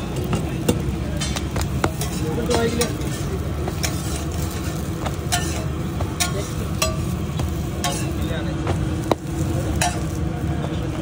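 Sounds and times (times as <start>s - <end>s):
metal spatula clinking on griddle: 0.0s - 8.4s, 9.2s - 10.3s
steady sizzling: 0.0s - 11.0s.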